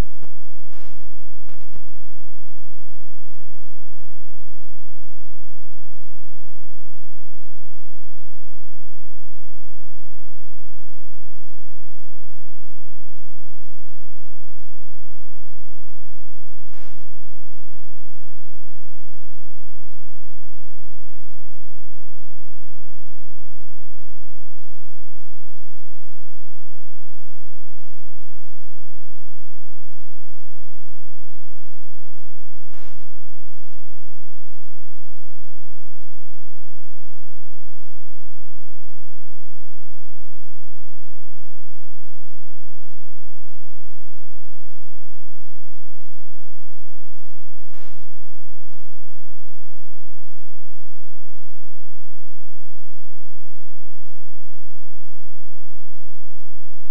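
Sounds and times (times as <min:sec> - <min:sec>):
brief click: 0:32.7 - 0:33.0, 0:47.7 - 0:48.0.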